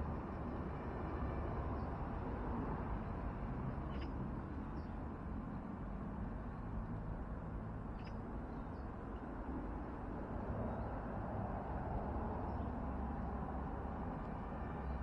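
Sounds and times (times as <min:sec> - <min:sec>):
faint bird chirps: 0:03.9 - 0:04.2, 0:07.9 - 0:09.3.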